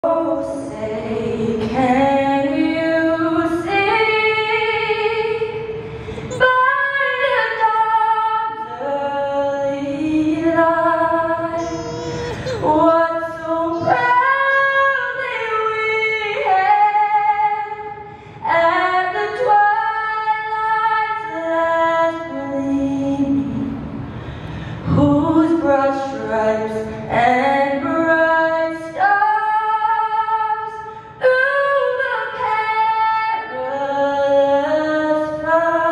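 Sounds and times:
singer breathing: 5.7s - 6.4s, 18.0s - 18.4s, 24.1s - 24.9s.

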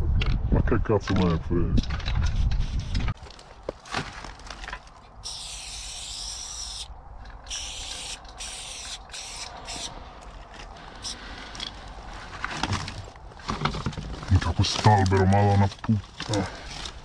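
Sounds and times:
spray paint can hissing: 5.2s - 9.9s.

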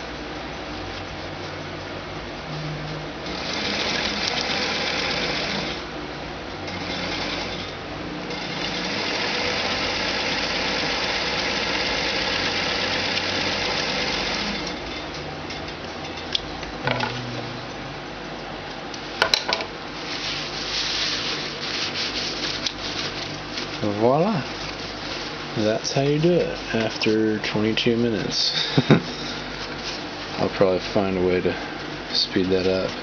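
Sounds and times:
sewing machine stitching: 3.2s - 5.8s, 6.7s - 7.7s, 8.3s - 14.8s.

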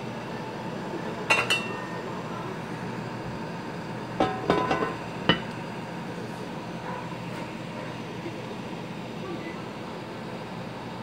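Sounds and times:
kitchenware clinking: 4.2s - 5.5s.

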